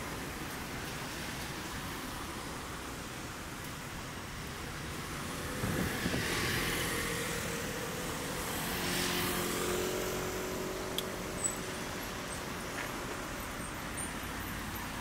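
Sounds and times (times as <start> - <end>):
outdoor noise bed: 0.0 - 15.0
motor engine passing by: 5.2 - 11.5.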